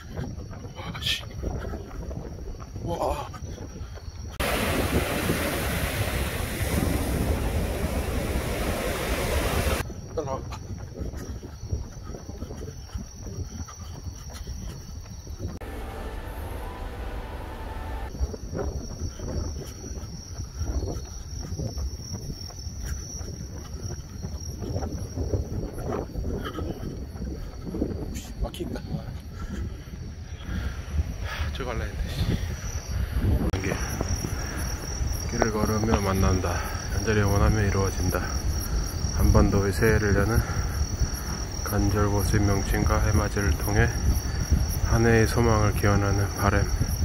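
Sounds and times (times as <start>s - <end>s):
night insects trilling: 0.0s - 47.0s
wind buffeting microphone: 0.0s - 47.0s
breaking waves: 4.4s - 9.8s.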